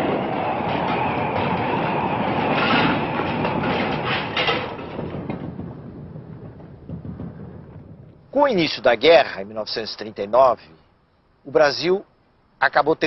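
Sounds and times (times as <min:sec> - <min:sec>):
rumbling crackling battle noise: 0:00.0 - 0:08.8.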